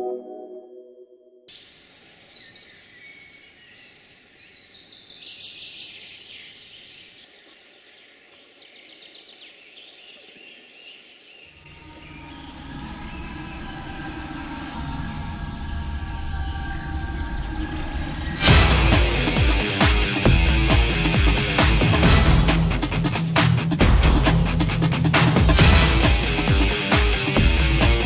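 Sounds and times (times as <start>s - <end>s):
small birds chirping and trilling: 1.5s - 18.4s.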